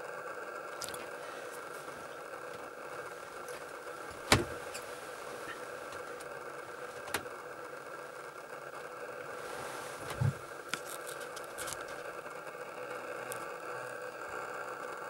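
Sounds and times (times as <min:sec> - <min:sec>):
mechanical hum: 0:00.0 - 0:15.0
dull thump: 0:04.1 - 0:04.7.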